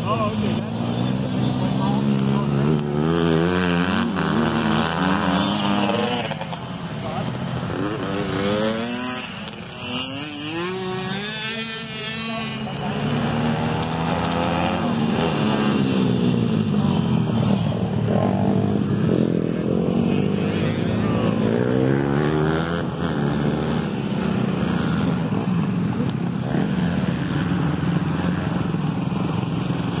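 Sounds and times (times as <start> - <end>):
dirt bike engines revving: 0.0 - 30.0.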